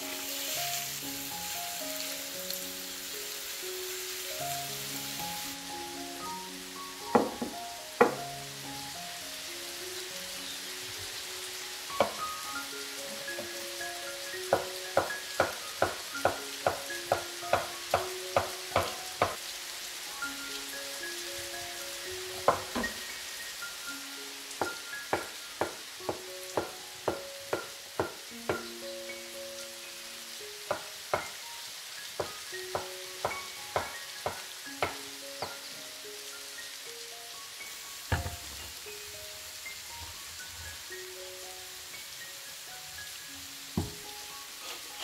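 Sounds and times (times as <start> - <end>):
knife knocking on cutting board: 7.2 - 8.2, 32.2 - 35.6, 38.1 - 38.4, 43.8 - 44.0.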